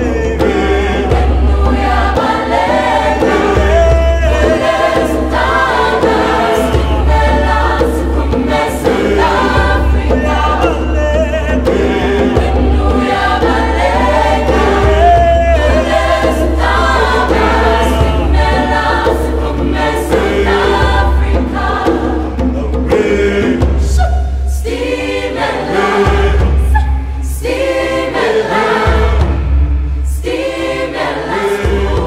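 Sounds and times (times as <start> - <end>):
choir singing: 0.0 - 32.0
steady deep bass: 25.5 - 32.0.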